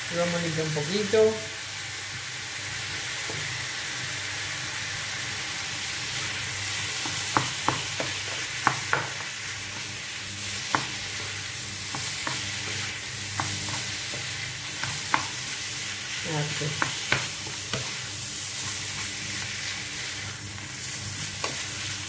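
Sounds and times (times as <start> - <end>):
meat sizzling in a frying pan: 0.0 - 22.0
spoon knocking against pan: 7.0 - 9.2.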